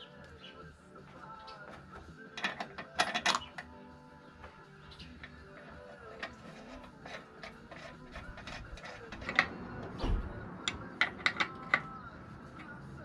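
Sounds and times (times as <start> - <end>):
metallic clicks and taps: 10.6 - 12.0.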